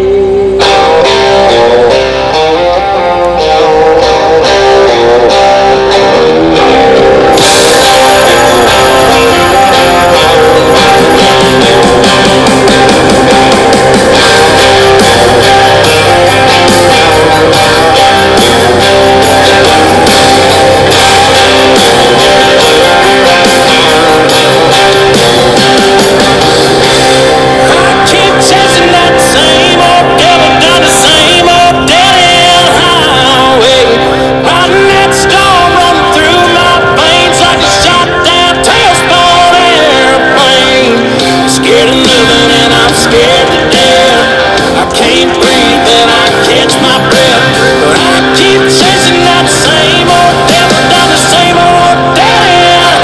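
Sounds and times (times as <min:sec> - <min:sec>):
guitar-led band song: 0:00.0 - 0:53.0.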